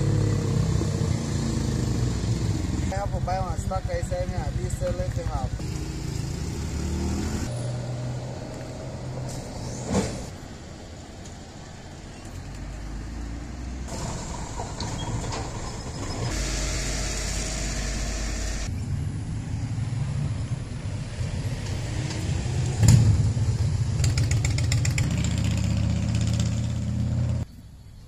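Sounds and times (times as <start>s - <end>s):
vehicle engine running: 0.0s - 7.5s.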